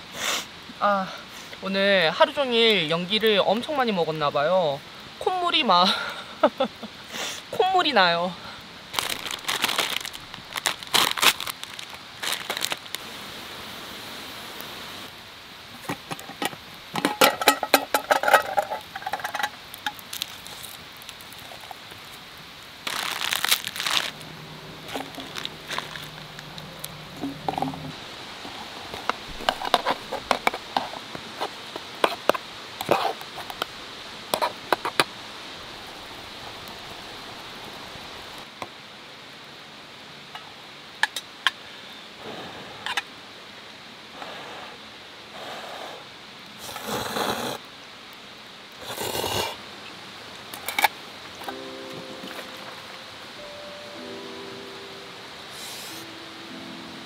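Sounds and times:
campfire crackling: 0.0s - 57.0s
plastic packet crinkling and tearing: 8.9s - 13.0s, 19.8s - 22.2s, 22.8s - 24.2s, 24.9s - 27.5s.

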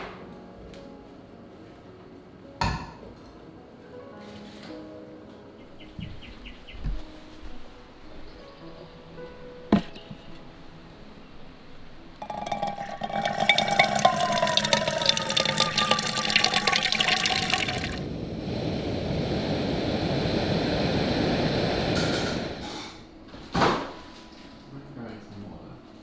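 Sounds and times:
tap water splashing into metal pot: 12.2s - 18.0s
gas stove burner hissing: 18.0s - 23.1s.

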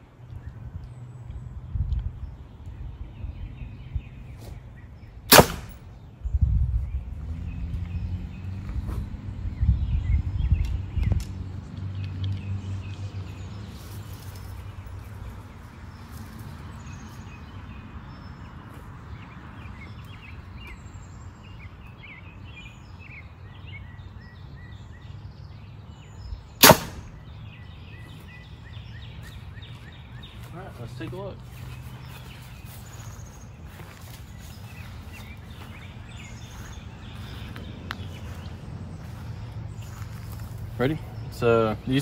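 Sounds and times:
bow shot crack: 5.3s - 5.8s, 26.6s - 27.2s.

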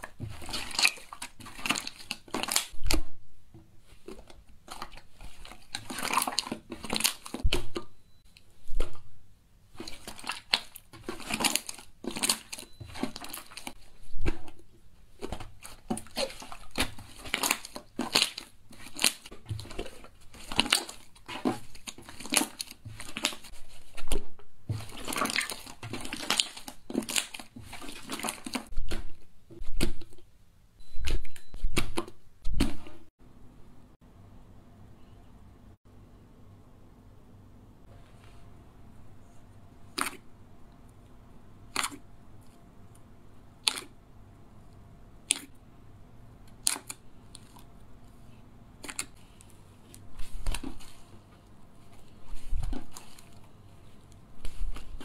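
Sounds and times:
slime crackling and clicking: 43.6s - 44.0s, 46.5s - 47.7s.

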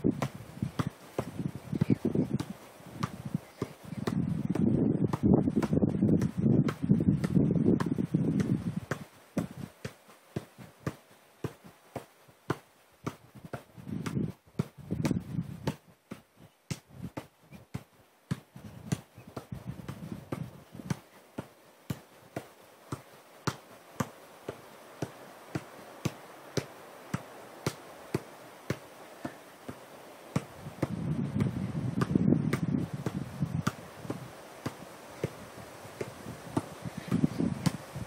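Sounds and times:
football touches on foot: 0.0s - 38.0s.

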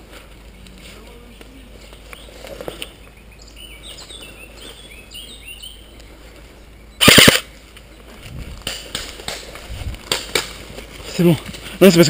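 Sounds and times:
birds chirping: 0.0s - 9.6s
rapid airsoft rifle shots: 7.0s - 7.5s.

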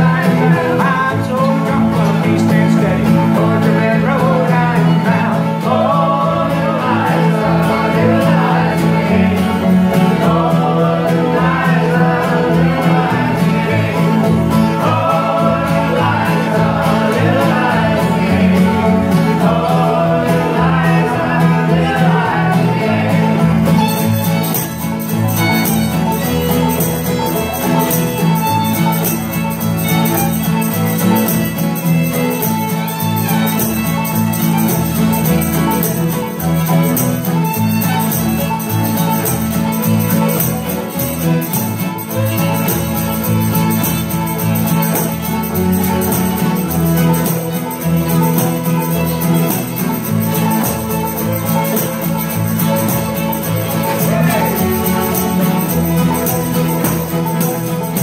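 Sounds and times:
fiddle: 0.0s - 58.0s
string band playing: 0.0s - 58.0s
voices singing together: 0.0s - 58.0s.

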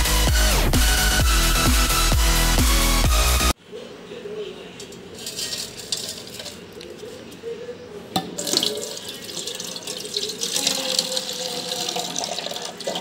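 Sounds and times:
tap water splashing into bowl: 8.2s - 13.0s.

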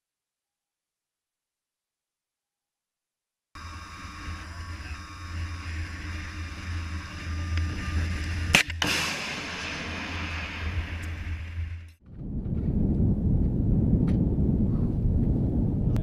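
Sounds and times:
rocket motor hiss: 3.6s - 11.9s
sharp bangs: 6.6s - 12.0s
low steady rumble: 9.5s - 16.0s.

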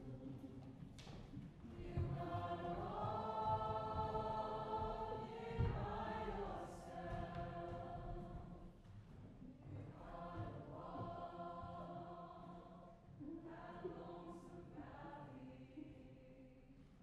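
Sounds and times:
choir singing held chords: 1.7s - 8.6s, 9.8s - 16.2s.

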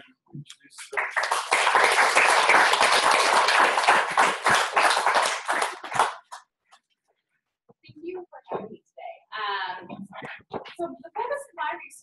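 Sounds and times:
audience applauding: 0.8s - 6.4s.

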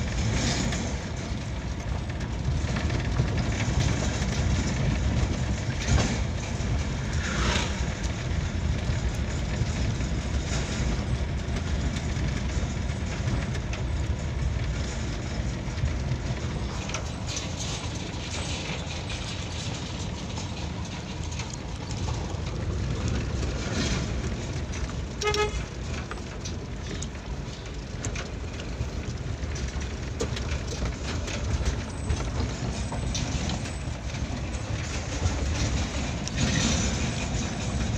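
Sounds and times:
engine and road rumble: 0.0s - 37.9s
short horn beep: 25.2s - 25.6s.

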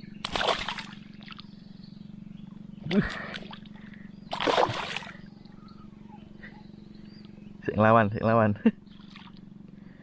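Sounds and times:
fish splashing in water: 0.2s - 1.4s, 4.3s - 5.2s.

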